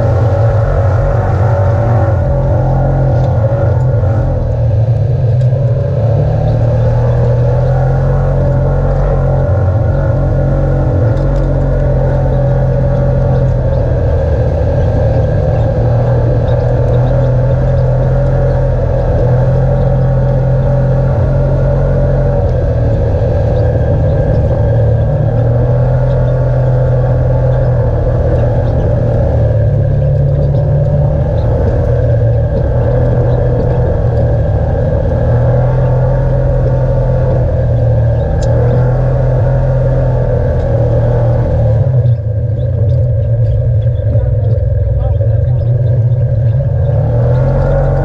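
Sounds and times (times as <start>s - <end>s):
off-road vehicle engine running: 0.0s - 48.0s.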